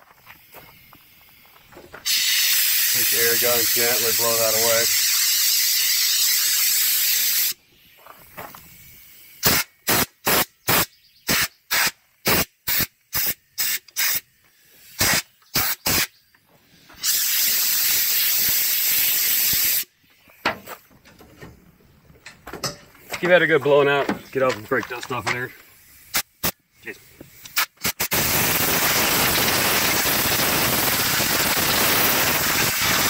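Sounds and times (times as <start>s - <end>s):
compressed air blow gun hissing: 0.2s - 20.9s, 25.1s - 33.0s.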